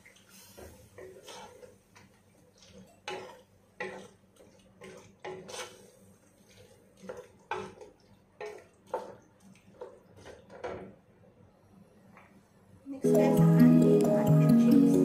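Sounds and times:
wooden spatula scraping a pot: 0.6 - 1.8, 2.8 - 9.2.

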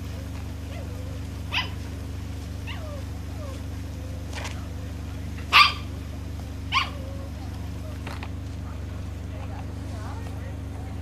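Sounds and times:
steady low hum: 0.0 - 11.0
dog whining: 0.6 - 1.8, 2.6 - 4.2
dog barking: 0.7 - 1.8, 5.4 - 6.0, 6.7 - 7.4.

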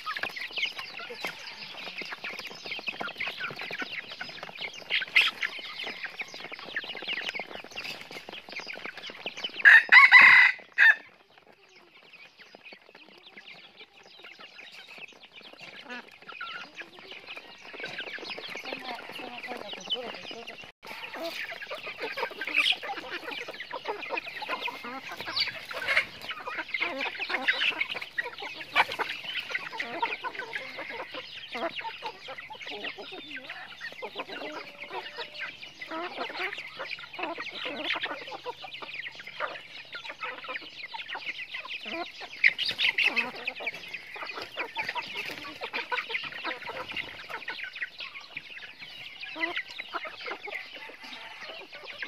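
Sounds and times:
chickens clucking: 0.0 - 52.0.

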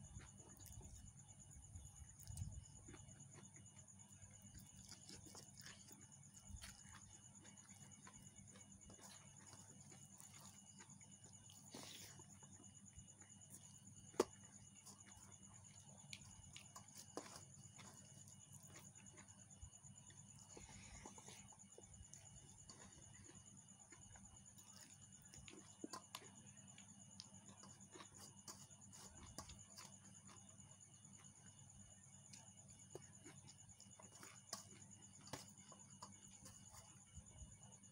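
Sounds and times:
eating by hand: 0.0 - 37.8
high insect trill: 0.0 - 37.9
chewing sounds: 1.8 - 12.6.

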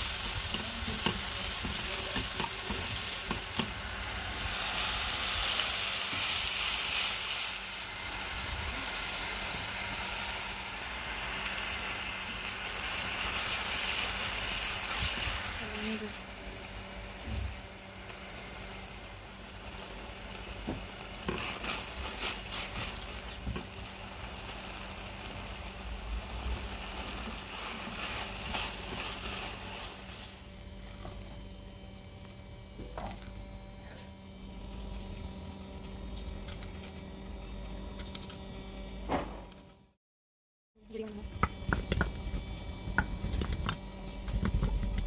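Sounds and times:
chicken and onion sizzling: 0.0 - 36.6
spatula scraping a pan: 21.2 - 23.6, 27.2 - 30.3.

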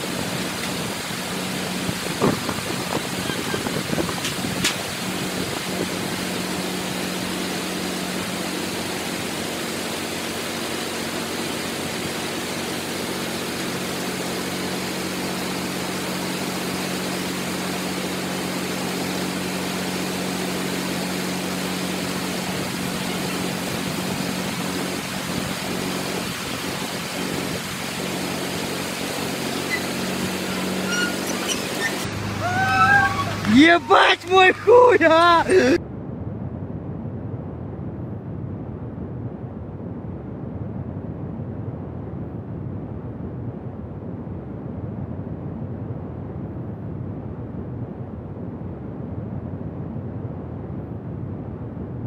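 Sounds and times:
bulldozer diesel engine running: 0.0 - 35.8
constant hiss: 20.1 - 35.8.

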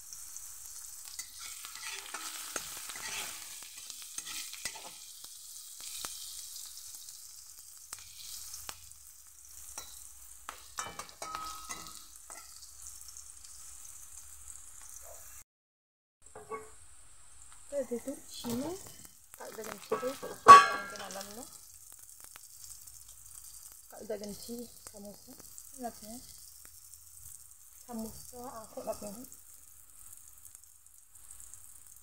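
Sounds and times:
oil sizzling in a wok: 0.0 - 15.4, 16.3 - 32.0
metal spatula scraping a pan: 0.7 - 5.1, 9.6 - 12.7, 16.4 - 16.8, 19.7 - 21.4.

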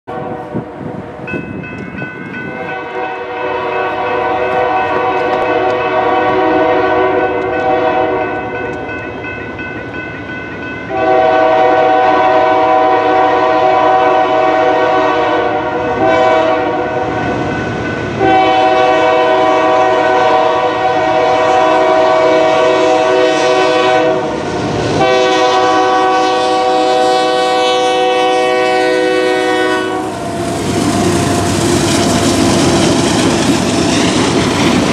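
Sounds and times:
locomotive air horn blasts: 0.1 - 0.7, 2.5 - 8.5, 10.9 - 17.2, 18.2 - 24.4, 25.0 - 32.4.

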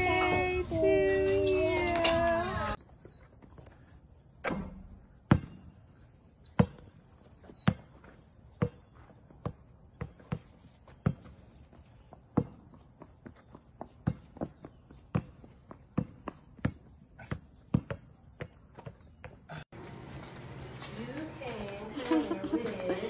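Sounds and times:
person singing: 0.0 - 2.8
basketball bouncing on asphalt: 4.5 - 19.5.

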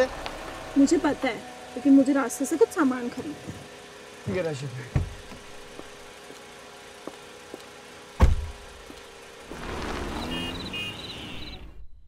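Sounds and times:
car driving off: 0.0 - 11.8
car door slamming: 8.2 - 8.6.

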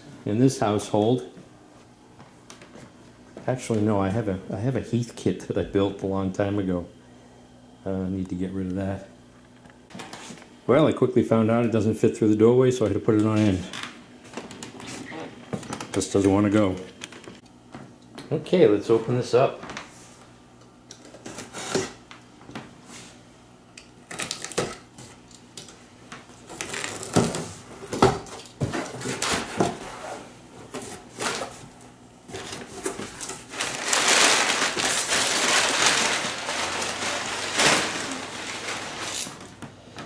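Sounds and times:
packing paper rustling: 26.5 - 27.6, 32.3 - 39.6.

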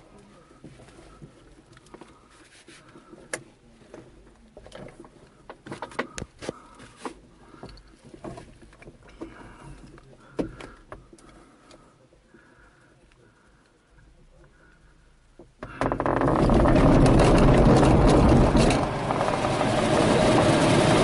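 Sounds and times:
knocks and rattles in cockpit: 15.4 - 21.0.

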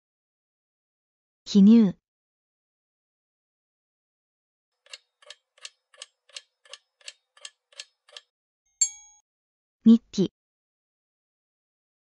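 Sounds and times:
clock ticking: 4.8 - 8.2
bright ding: 8.8 - 9.2.

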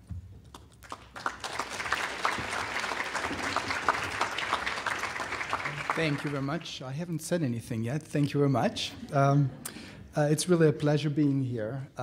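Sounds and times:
audience applauding: 0.8 - 6.8.

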